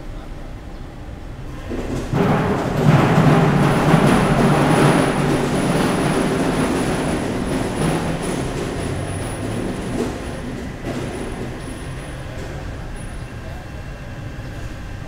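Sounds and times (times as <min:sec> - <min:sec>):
loud mechanical rumble: 0:00.0 - 0:15.0.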